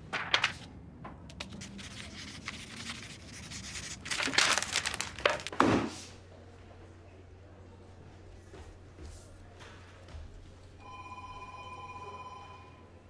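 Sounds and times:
paper rustling and crumpling: 0.1s - 0.7s, 1.3s - 5.5s.

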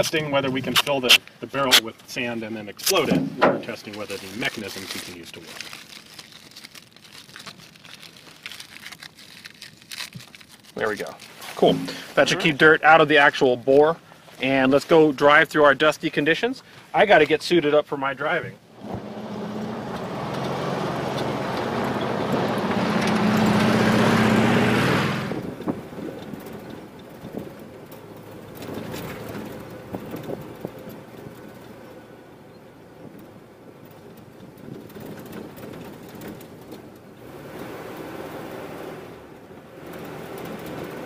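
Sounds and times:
knocks and rattles: 2.9s - 4.1s, 33.8s - 37.0s
car passing on dirt track: 18.7s - 32.3s, 33.8s - 41.0s.

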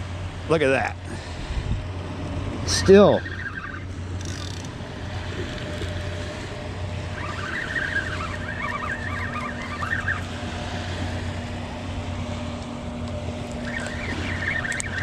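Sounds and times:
distant motor rumble: 0.0s - 15.0s
faint wavering high tones: 7.0s - 10.4s.

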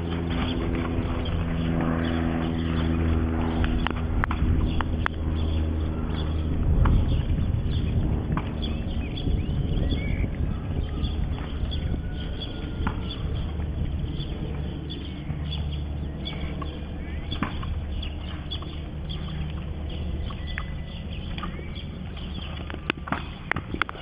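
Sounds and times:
muffled horse hoofbeats: 0.0s - 24.0s
steady low rumble: 0.0s - 24.0s
scattered clicks: 2.7s - 5.6s, 16.3s - 24.0s
bird chirps: 4.6s - 13.5s, 14.1s - 23.6s.

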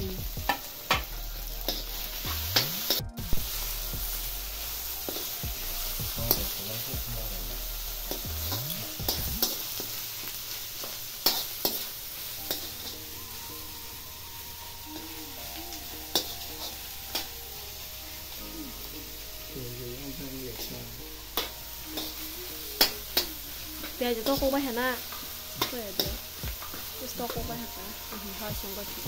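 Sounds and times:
onions sizzling in a wok: 0.0s - 29.0s
metal spoon scraping a pan: 9.4s - 13.1s, 16.0s - 18.1s, 20.6s - 24.4s.

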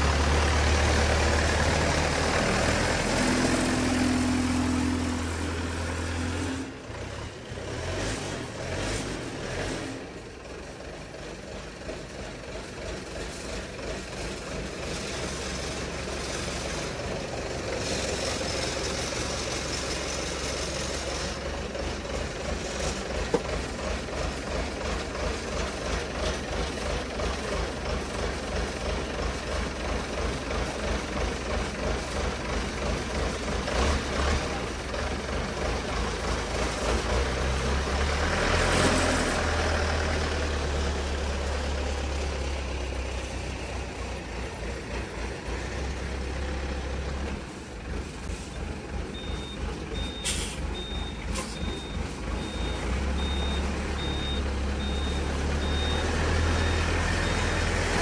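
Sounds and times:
diesel engine throbbing: 0.0s - 58.0s.

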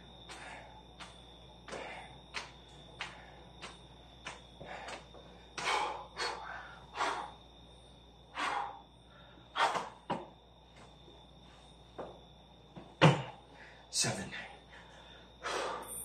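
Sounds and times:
man breathing heavily: 0.0s - 10.1s, 13.4s - 16.0s.

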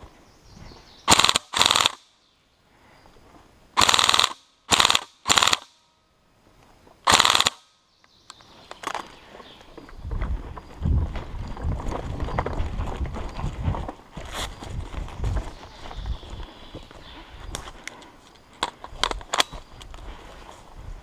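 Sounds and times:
airsoft rifle full-auto bursts: 1.1s - 2.0s, 3.8s - 5.8s, 7.1s - 7.6s.

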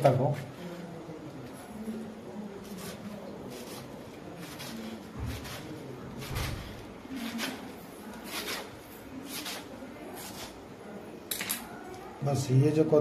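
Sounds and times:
knife cutting leaves on wooden board: 2.6s - 10.6s.

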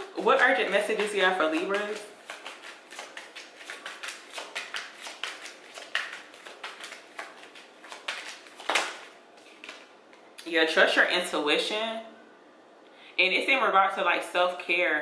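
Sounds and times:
cards being shuffled: 0.0s - 10.2s.

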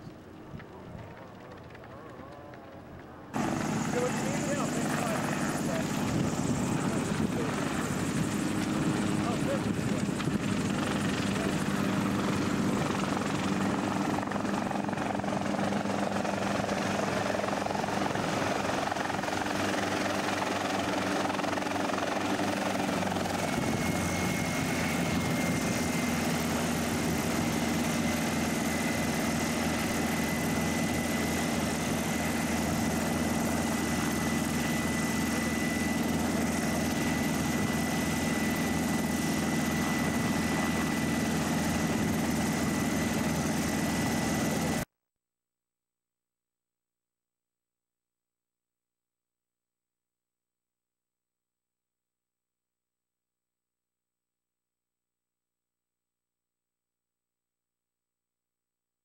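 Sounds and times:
helicopter engine and rotor: 3.3s - 44.9s.

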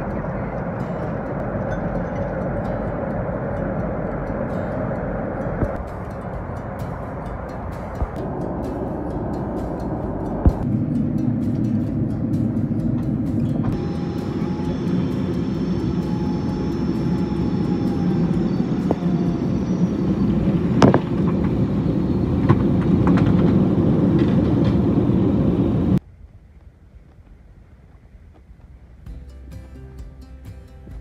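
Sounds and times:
faint high whine: 0.0s - 27.0s
airliner engine and air rumble: 0.0s - 29.0s.

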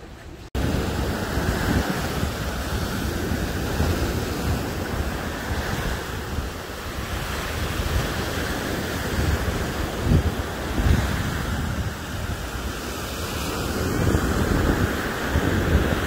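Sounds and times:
wind buffeting microphone: 0.0s - 16.0s
small waves breaking on sand: 0.6s - 16.0s.

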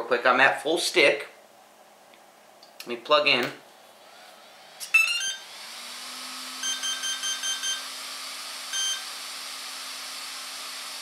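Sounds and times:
short electronic beeps: 4.9s - 5.4s, 6.6s - 7.8s, 8.8s - 9.0s
longer electronic beep: 5.0s - 5.4s, 6.6s - 7.9s, 8.8s - 9.1s.

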